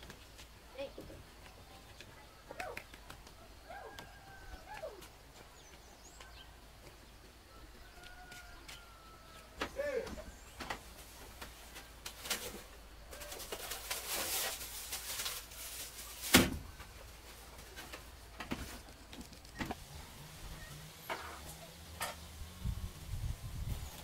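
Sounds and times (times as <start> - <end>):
footsteps on wooden boards: 4.0 - 11.8
woven basket rustling: 10.1 - 20.1.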